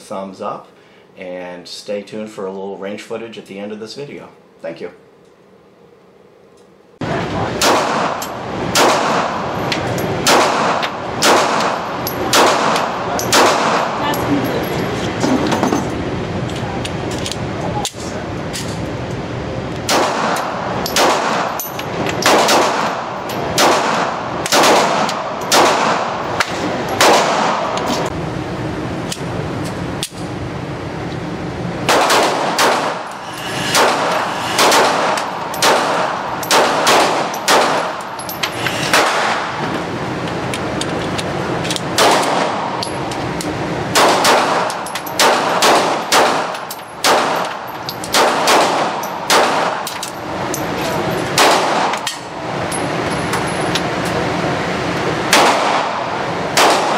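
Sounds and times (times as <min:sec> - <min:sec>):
pistol shots echoing: 0:07.6 - 0:09.5, 0:10.2 - 0:14.0, 0:19.9 - 0:21.6, 0:22.2 - 0:26.4, 0:27.0 - 0:27.8, 0:31.9 - 0:33.1, 0:33.7 - 0:38.2, 0:41.9 - 0:42.8, 0:43.9 - 0:49.9, 0:51.3 - 0:52.2, 0:55.3 - 0:56.9.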